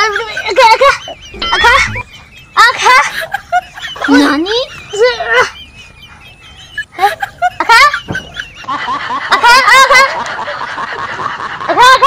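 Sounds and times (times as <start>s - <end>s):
high-pitched wavering laughter: 0.0s - 12.0s.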